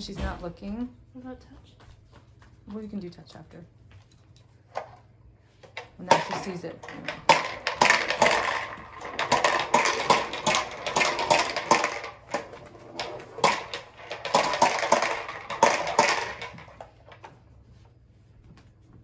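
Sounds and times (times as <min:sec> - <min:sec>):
popper toy balls clattering: 0:05.6 - 0:17.4.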